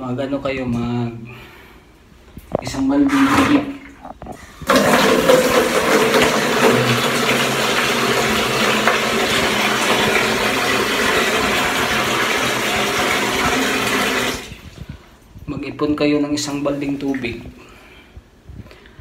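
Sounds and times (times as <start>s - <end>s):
tap water running into a bucket: 4.6s - 14.7s.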